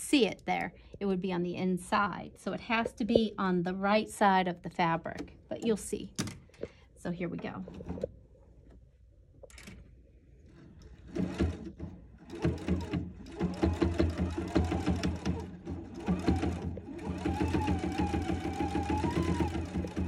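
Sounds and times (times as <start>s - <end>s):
sewing machine stitching: 10.4s - 20.0s.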